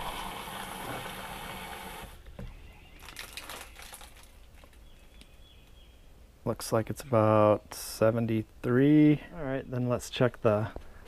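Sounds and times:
water running into a plastic cup: 0:00.0 - 0:02.2.

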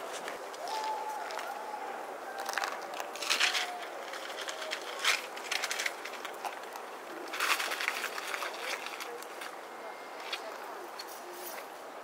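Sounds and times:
paper rustling and crinkling: 0:02.4 - 0:09.6.

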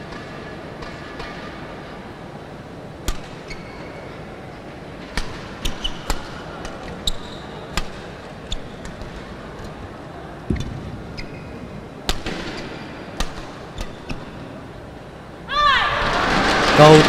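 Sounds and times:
murmur of sports hall: 0:00.0 - 0:17.0
shoe squeaks on court floor: 0:03.4 - 0:04.1, 0:07.0 - 0:07.6, 0:10.5 - 0:11.7
racket striking shuttlecock: 0:05.1 - 0:09.2, 0:12.0 - 0:14.4.

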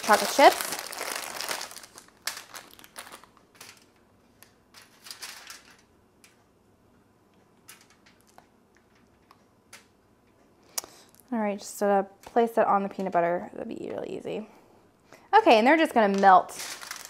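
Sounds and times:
plastic bag rustling: 0:00.0 - 0:03.9, 0:04.8 - 0:05.9, 0:16.0 - 0:17.0.

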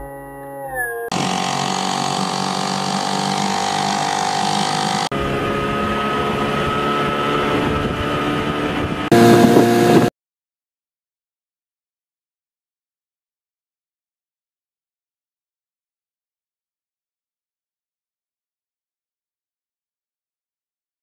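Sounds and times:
outboard motor running: 0:01.1 - 0:10.1.

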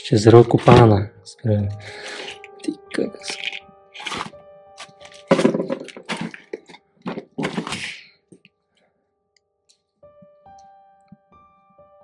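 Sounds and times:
metal briefcase clunking on concrete: 0:03.4 - 0:08.0.

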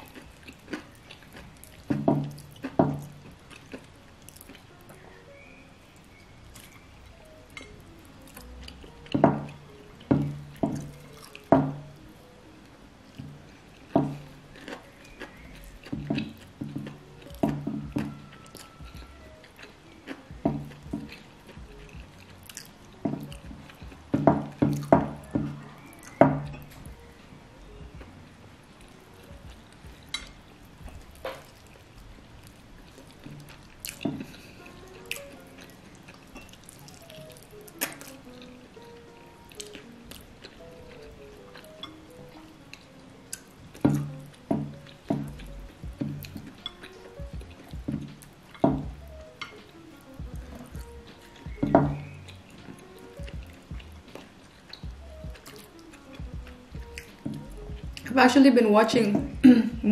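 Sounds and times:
chewing mouth sounds: 0:00.0 - 0:05.5, 0:10.4 - 0:11.5, 0:13.4 - 0:27.0, 0:28.7 - 0:58.1
faint background music: 0:00.0 - 0:59.9
furniture knocking as it rocks: 0:01.9 - 0:03.1, 0:23.1 - 0:25.6, 0:47.2 - 0:49.0, 0:51.5 - 0:52.0.

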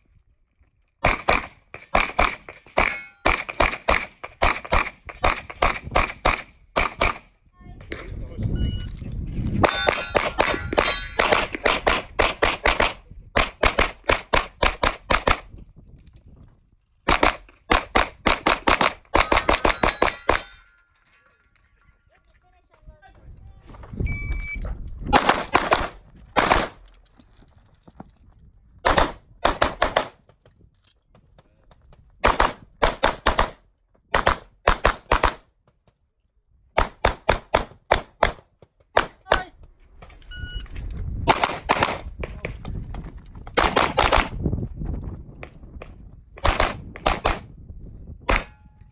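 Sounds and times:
rapid pistol shots: 0:01.0 - 0:07.3, 0:09.7 - 0:15.5, 0:17.1 - 0:20.5, 0:25.1 - 0:26.8, 0:28.8 - 0:30.2, 0:32.2 - 0:35.5, 0:36.8 - 0:39.5, 0:41.2 - 0:42.1, 0:43.6 - 0:44.4, 0:46.4 - 0:47.5.

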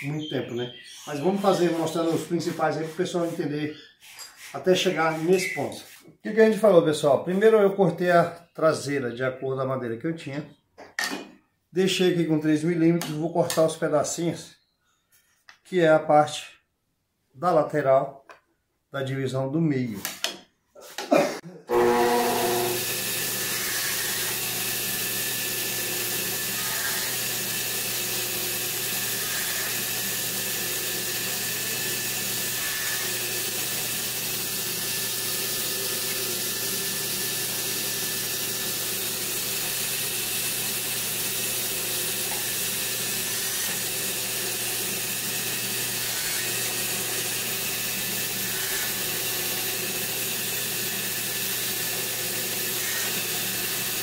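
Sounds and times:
power saw cutting wood: 0:01.0 - 0:06.0, 0:21.7 - 0:54.0.

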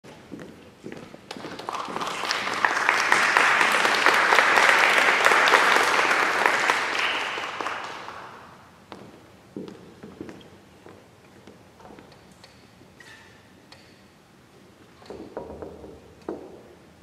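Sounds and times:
audience applauding: 0:01.3 - 0:08.6.

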